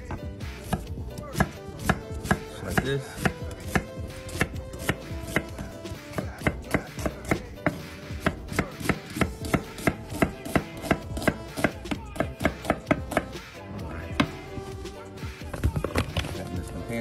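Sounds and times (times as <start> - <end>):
knife chopping on wooden board: 0.1 - 13.3.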